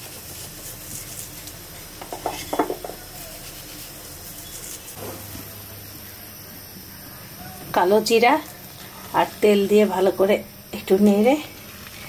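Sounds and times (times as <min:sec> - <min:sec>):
kitchenware clinks and knocks: 0:02.0 - 0:03.0.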